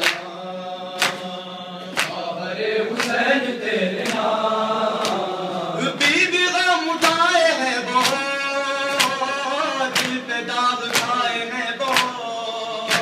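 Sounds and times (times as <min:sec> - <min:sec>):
men chanting a lament: 0:00.0 - 0:13.0
hands slapping chests: 0:01.0 - 0:01.3, 0:01.9 - 0:02.2, 0:04.0 - 0:04.3, 0:05.0 - 0:05.3, 0:08.0 - 0:08.3, 0:09.9 - 0:10.2, 0:10.9 - 0:11.2, 0:11.9 - 0:12.2.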